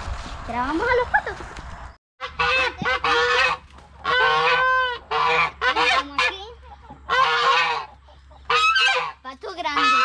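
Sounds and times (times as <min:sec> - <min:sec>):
waterfowl harsh calls: 0:02.2 - 0:10.0.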